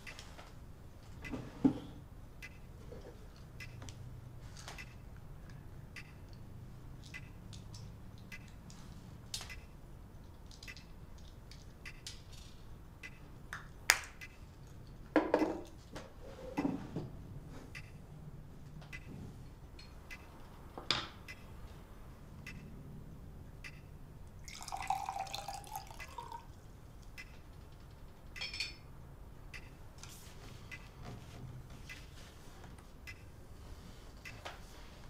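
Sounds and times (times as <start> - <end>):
clock ticking: 2.4 - 2.7, 3.5 - 3.9, 4.8 - 5.2, 5.9 - 6.5, 7.1 - 7.4, 8.2 - 8.6, 9.5 - 9.7, 11.8 - 12.0, 13.0 - 13.3, 14.2 - 14.4, 17.7 - 18.1, 18.9 - 19.1, 20.0 - 20.5, 21.2 - 21.6, 22.4 - 22.8, 23.6 - 23.9, 27.1 - 28.5, 29.5 - 29.8, 30.7 - 31.0, 31.9 - 32.1, 33.0 - 33.3
sharp click: 4.8 - 5.0, 11.8 - 12.2, 22.5 - 22.7.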